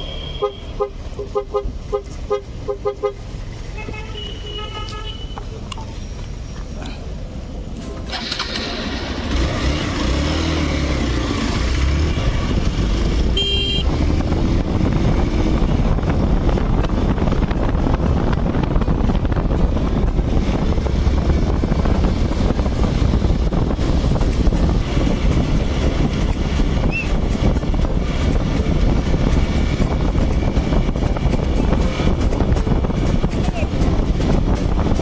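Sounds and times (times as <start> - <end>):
motorcycle engine running: 8.1 - 35.0
wind rush on microphone: 11.9 - 35.0
horn toot: 13.3 - 13.9.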